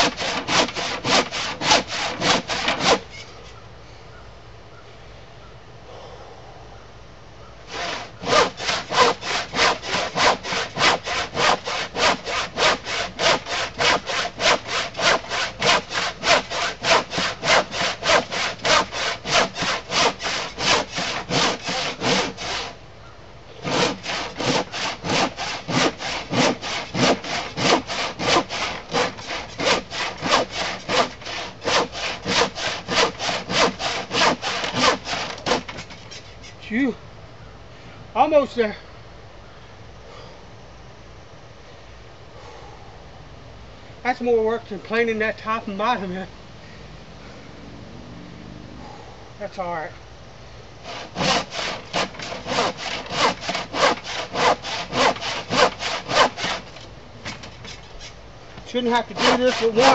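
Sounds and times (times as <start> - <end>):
hand saw rasping through wood: 0.0 - 3.1, 7.7 - 22.8, 23.6 - 36.4, 50.8 - 58.1, 58.7 - 59.9.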